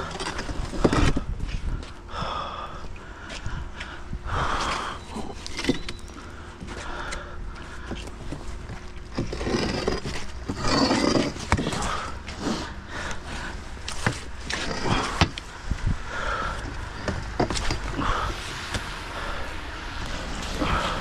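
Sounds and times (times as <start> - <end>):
iron pole scraping on stone: 4.9 - 7.2, 8.4 - 15.4.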